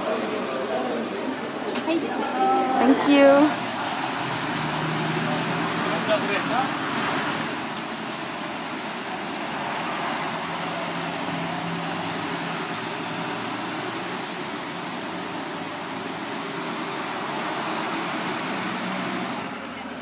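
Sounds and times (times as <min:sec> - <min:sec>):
traffic on a wet road: 0:00.0 - 0:20.0.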